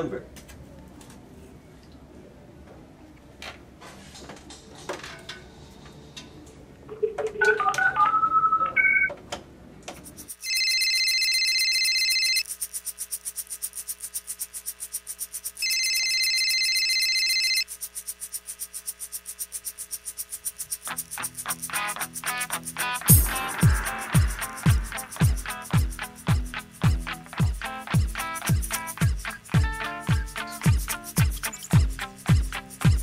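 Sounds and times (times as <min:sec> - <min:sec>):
touch-tone dialing beeps: 0:07.4 - 0:09.1, 0:10.4 - 0:12.4, 0:15.6 - 0:17.6
cell phone ringtone: 0:10.3 - 0:12.5, 0:15.6 - 0:17.7.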